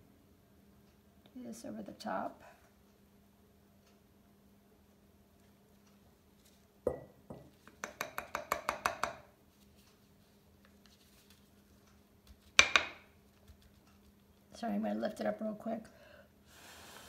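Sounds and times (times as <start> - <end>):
palette knife tapping ceramic tile: 6.9 - 9.3, 12.6 - 13.0.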